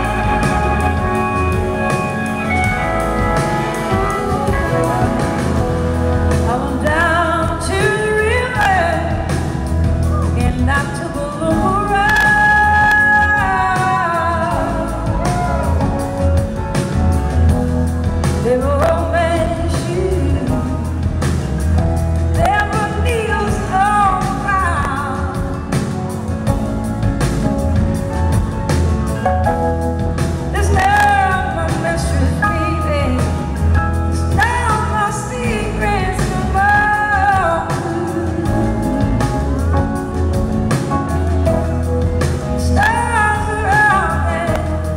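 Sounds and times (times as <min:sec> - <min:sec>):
woman singing: 0:00.0 - 0:05.6, 0:06.2 - 0:16.0, 0:18.2 - 0:21.3, 0:22.3 - 0:25.8, 0:30.5 - 0:40.1, 0:40.8 - 0:44.9
live blues-rock band: 0:00.0 - 0:44.9.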